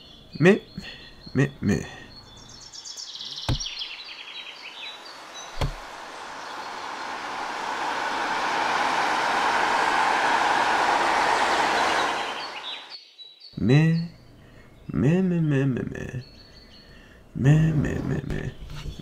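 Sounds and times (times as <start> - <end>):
birds chirping: 0.0 - 18.7
rushing vehicle noise: 3.4 - 13.0
axe chopping wood: 3.5 - 3.7.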